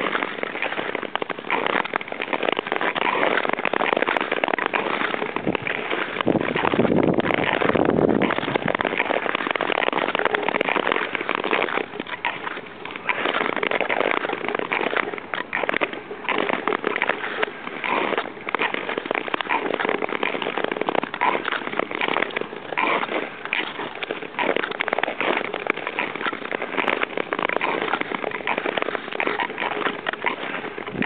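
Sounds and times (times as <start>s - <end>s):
ice skates scraping on ice: 0.0s - 31.0s.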